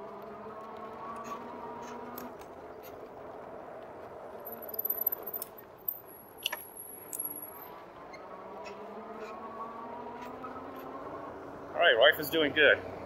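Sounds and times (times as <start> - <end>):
bike tyres rolling: 0.0 - 8.2
wind: 0.0 - 13.0.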